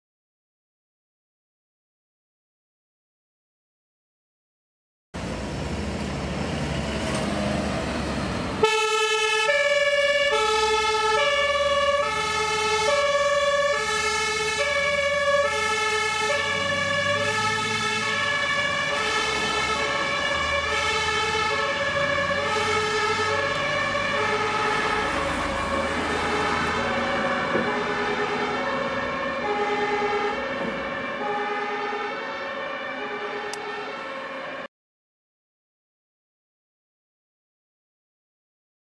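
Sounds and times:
engine and road noise: 5.2s - 34.7s
two-tone siren: 8.6s - 34.7s.

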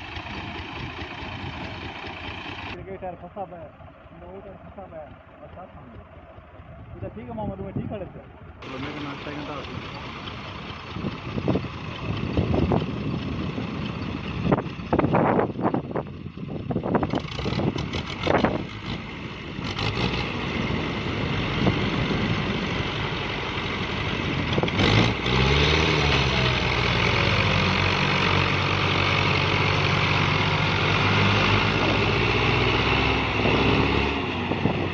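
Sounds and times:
diesel tractor engine revving: 0.0s - 34.9s
wind buffeting microphone: 10.4s - 19.7s, 20.3s - 25.0s, 33.2s - 34.9s.

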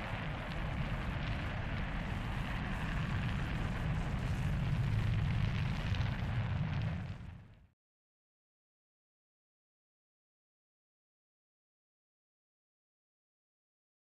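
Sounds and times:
rocket deep rumble with crackle: 0.0s - 7.8s.

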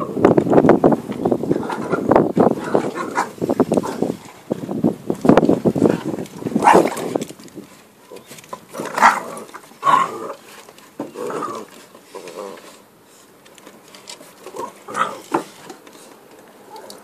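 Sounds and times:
dogs play-growling and grunting: 1.5s - 4.5s, 8.1s - 13.0s, 14.2s - 17.0s.

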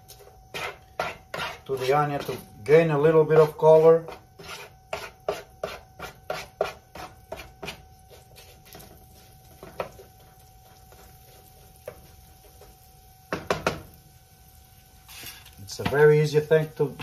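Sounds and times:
faint steady hum: 0.0s - 17.0s
wooden spatula scraping frying pan: 0.2s - 2.4s, 3.2s - 12.8s.

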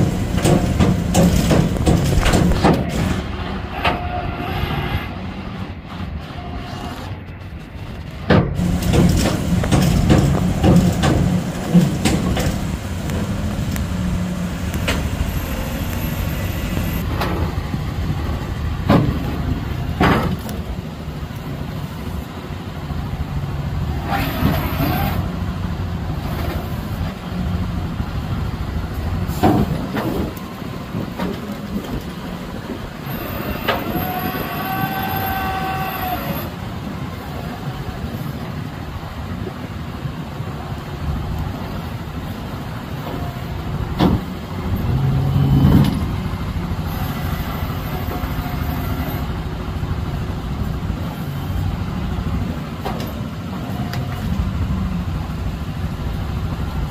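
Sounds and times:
metal knocks and clanks: 0.0s - 4.0s, 8.2s - 13.3s
truck engine running: 0.0s - 4.4s, 5.1s - 34.6s
whining tone: 33.0s - 36.6s.

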